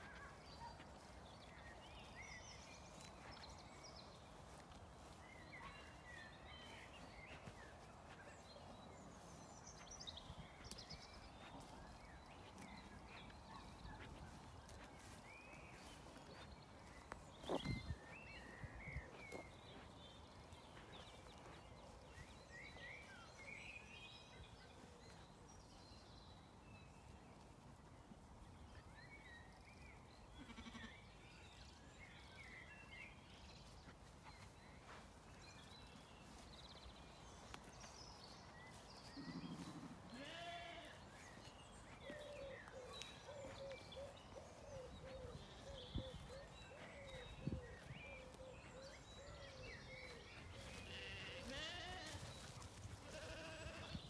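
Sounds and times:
faint birds chirping: 0.0 - 54.0
sheep bleating: 30.4 - 31.0, 39.3 - 41.0, 50.9 - 52.2, 53.0 - 53.9.

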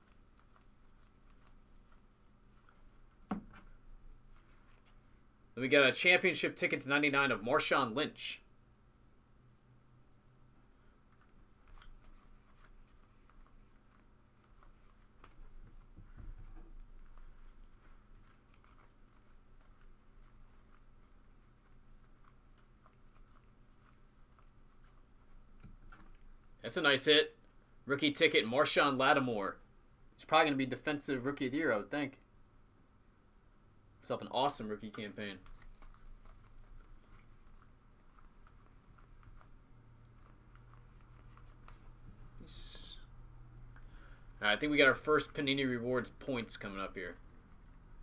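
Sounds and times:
low steady hum: 0.0 - 48.0
trading cards flipped by hand: 11.1 - 16.0, 34.8 - 42.3.

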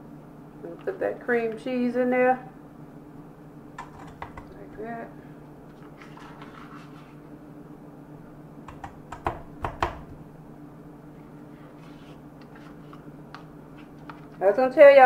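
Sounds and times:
sharp knocks: 8.7 - 10.1.

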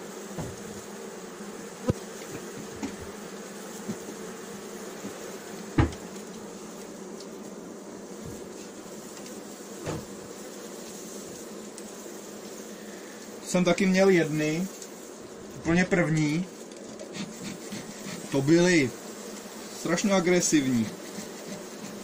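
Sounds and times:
bees buzzing: 0.0 - 22.0
knocks on wooden hive: 0.3 - 0.8, 1.8 - 3.2, 5.0 - 6.1, 9.8 - 10.2.

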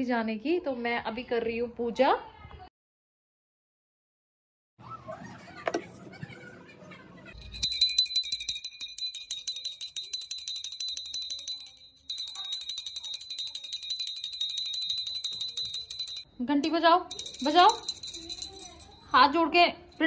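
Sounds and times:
small hand bell ringing rapidly: 7.4 - 20.0.

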